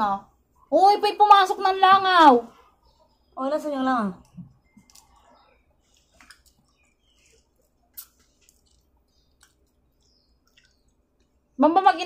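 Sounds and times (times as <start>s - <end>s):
chewing mouth smacks: 4.6s - 11.4s.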